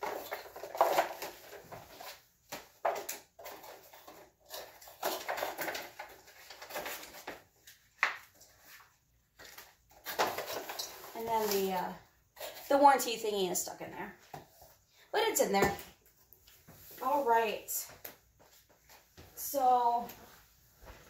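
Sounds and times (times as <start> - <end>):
cardboard and plastic rustling: 0.0 - 13.0.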